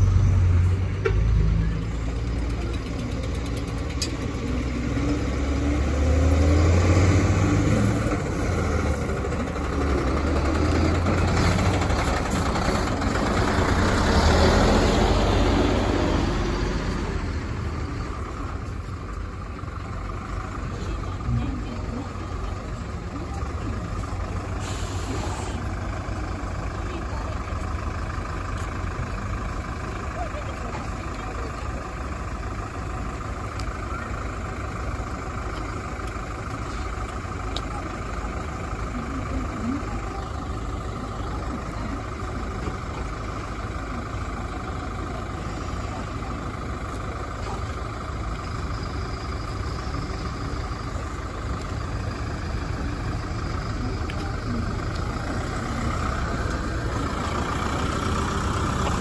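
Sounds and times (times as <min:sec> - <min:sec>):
fire truck engines idling: 0:00.0 - 0:59.0.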